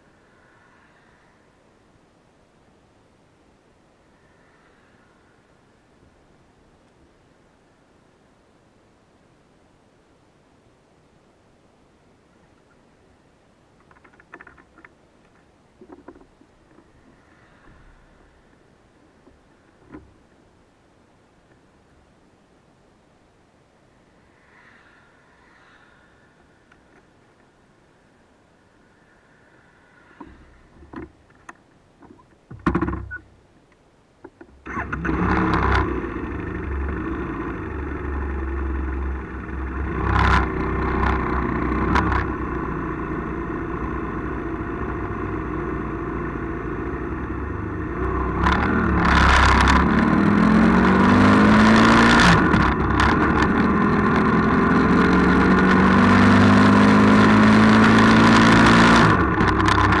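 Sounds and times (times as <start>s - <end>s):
wind and road noise: 0.0s - 60.0s
vehicle engine accelerating: 34.7s - 60.0s.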